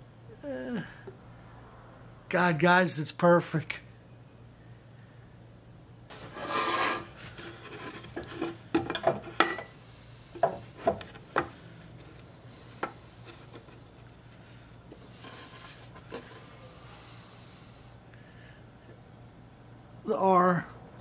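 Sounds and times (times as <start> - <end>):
board rubbing against metal square: 6.1 - 8.6.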